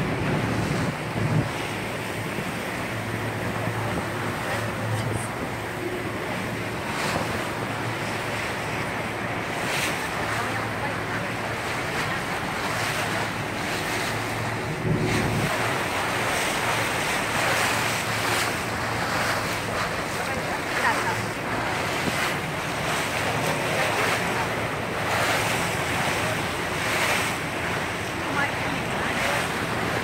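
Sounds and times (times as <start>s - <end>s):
water splashing against hull: 0.0s - 30.0s
wind buffeting microphone: 0.0s - 30.0s.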